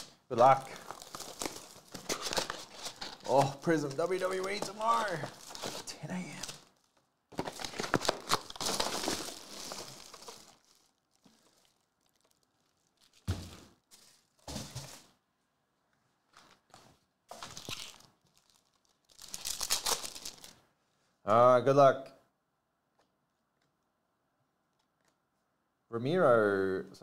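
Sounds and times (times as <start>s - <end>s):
foil wrappers crinkling and tearing: 0.0s - 15.1s, 17.3s - 20.6s.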